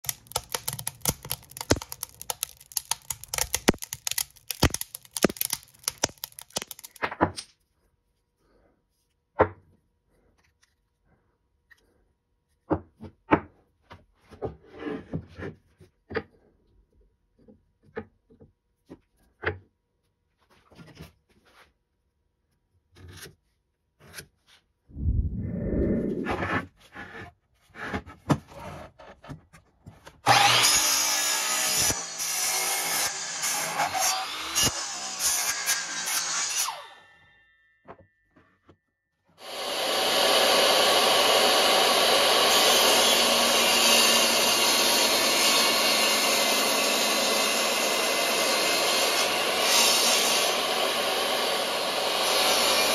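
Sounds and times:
fire crackling and popping: 0:00.0 - 0:07.0.

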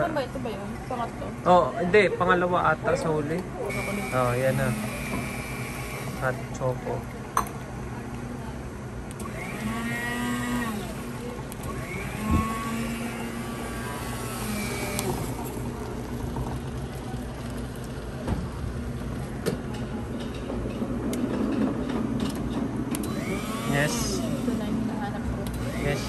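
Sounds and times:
hot drink pouring into cup: 0:13.0 - 0:19.4.

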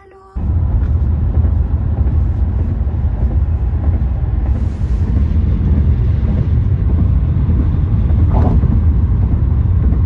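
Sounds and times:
road and wind noise in car: 0:00.0 - 0:10.0.

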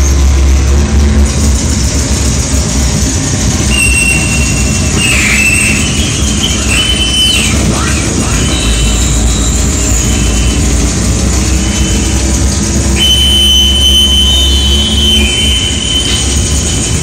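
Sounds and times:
harsh noise wash: 0:00.0 - 0:17.0
low rumble: 0:00.0 - 0:17.0
high whistling tones: 0:03.6 - 0:17.0.

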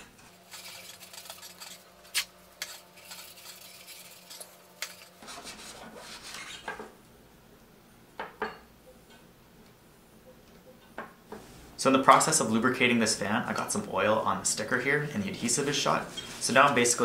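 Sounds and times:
paper towel rubbing and crumpling: 0:00.0 - 0:06.5.

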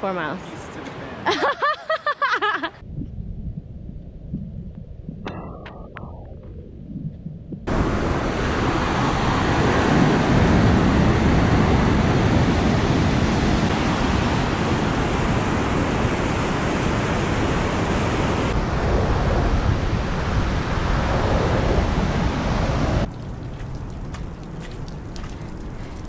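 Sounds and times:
wind on microphone: 0:02.8 - 0:26.0.

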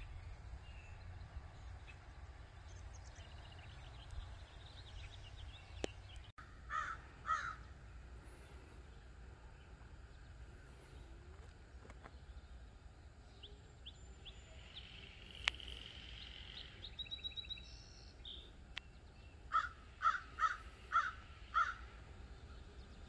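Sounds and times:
light bird chirps: 0:00.0 - 0:23.0
crow cawing: 0:06.4 - 0:07.6, 0:19.5 - 0:21.9.

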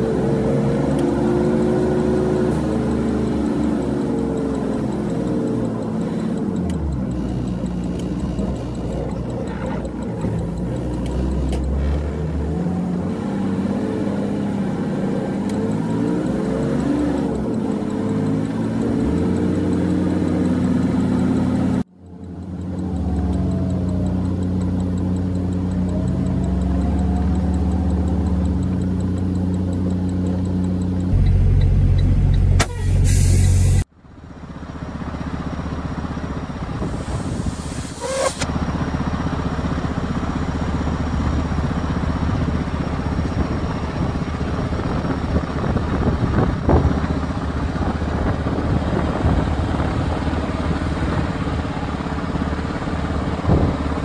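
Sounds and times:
truck engine running: 0:00.0 - 0:54.0
click: 0:03.9 - 0:12.0, 0:22.0 - 0:32.8.

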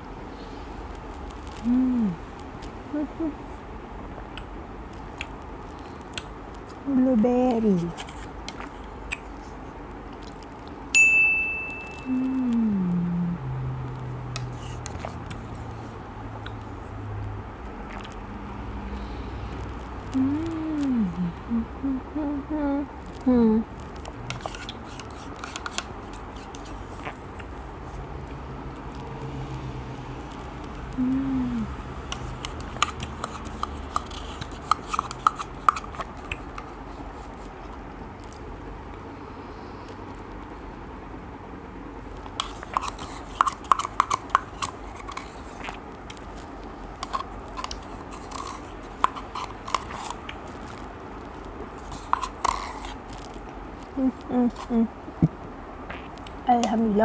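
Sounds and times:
person humming mmm: 0:01.6 - 0:02.2, 0:02.9 - 0:03.4, 0:12.0 - 0:13.7, 0:20.1 - 0:23.7, 0:30.9 - 0:31.8, 0:54.0 - 0:54.9
wet mouth clicks and smacks: 0:08.5 - 0:09.4, 0:17.8 - 0:18.2
spoon scraping plastic cup: 0:14.4 - 0:15.2, 0:24.3 - 0:27.2, 0:32.1 - 0:36.1, 0:42.4 - 0:45.8, 0:47.0 - 0:50.3, 0:51.8 - 0:53.3.

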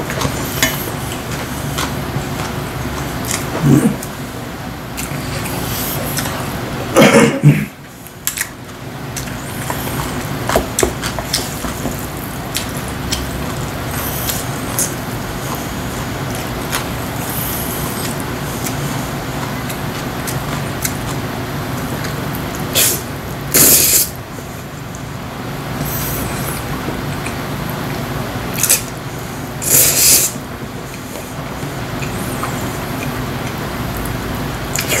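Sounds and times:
noodles slurped: 0:28.6 - 0:33.6.

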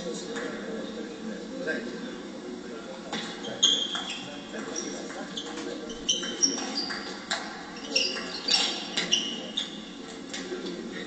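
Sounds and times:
sports shoes squeaking on floor: 0:03.2 - 0:10.0.

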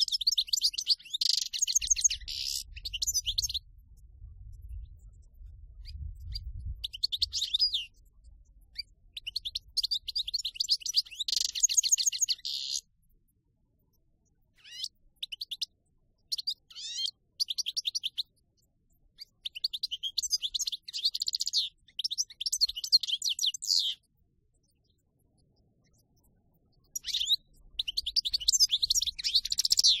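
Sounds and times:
goldfinch twittering and trilling: 0:00.0 - 0:03.7, 0:05.8 - 0:12.8, 0:14.6 - 0:18.3, 0:19.1 - 0:24.0, 0:26.8 - 0:30.0.

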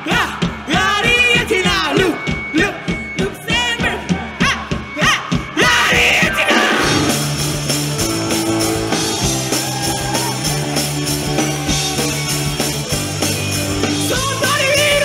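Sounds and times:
live rock band playing: 0:00.0 - 0:15.0
held bass notes: 0:06.0 - 0:15.0.

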